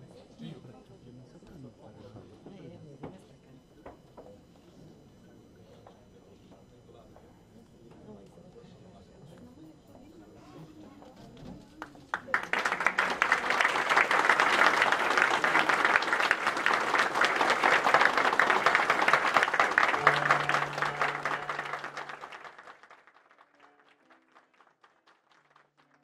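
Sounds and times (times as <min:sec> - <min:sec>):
crowd applauding: 0:12.0 - 0:26.0.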